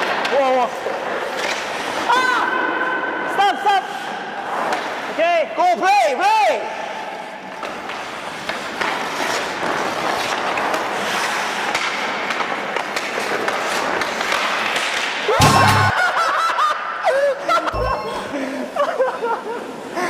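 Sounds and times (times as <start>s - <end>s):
skate blades scraping on ice: 0.0s - 2.4s, 7.5s - 15.2s
sticks clicking on puck: 7.6s - 15.2s.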